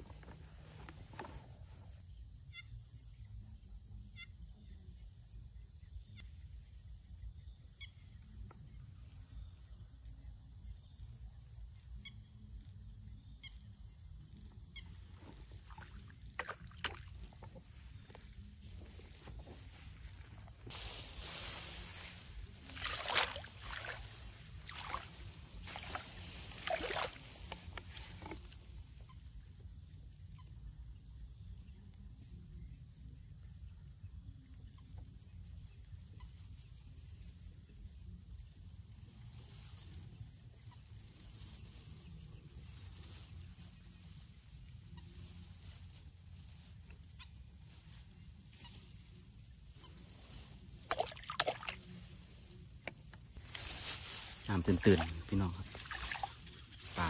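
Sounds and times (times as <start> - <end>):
rice plants rustling: 15.0 - 28.6, 53.3 - 57.0.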